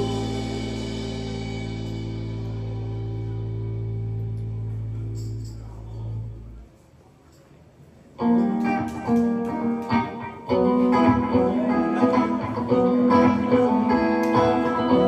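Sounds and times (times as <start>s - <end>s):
strummed electric guitar riff: 0.0s - 5.2s, 8.2s - 15.0s
live rock band: 0.0s - 5.4s, 8.2s - 15.0s.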